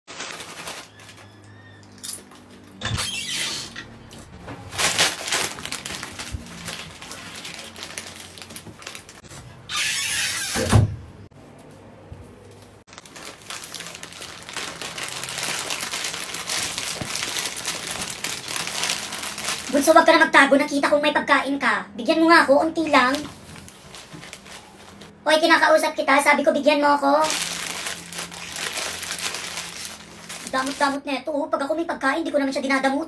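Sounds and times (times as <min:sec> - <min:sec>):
plastic chip bag crinkling: 0:00.1 - 0:02.6, 0:04.7 - 0:09.3, 0:12.9 - 0:20.0, 0:22.9 - 0:25.1, 0:27.2 - 0:31.0.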